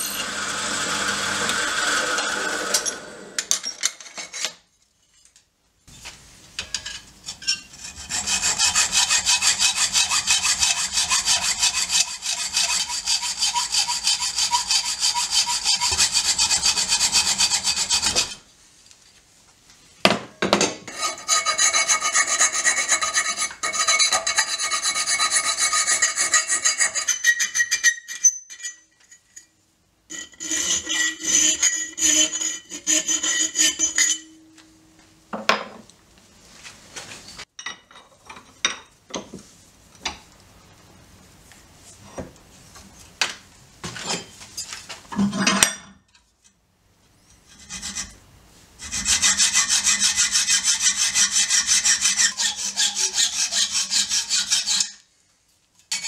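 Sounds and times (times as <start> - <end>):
hacksaw cutting steel: 0.0 - 3.5, 7.8 - 18.4, 20.9 - 28.8, 30.1 - 34.3, 48.8 - 55.0
needle file rasping in steel: 7.7 - 18.4, 48.8 - 55.0.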